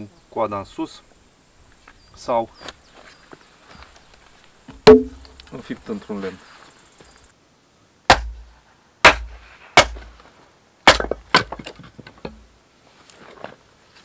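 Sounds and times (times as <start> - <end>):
axe splitting log: 4.7 - 5.4, 8.1 - 10.2, 10.8 - 12.4
split wood clattering: 4.7 - 5.6, 10.9 - 12.5.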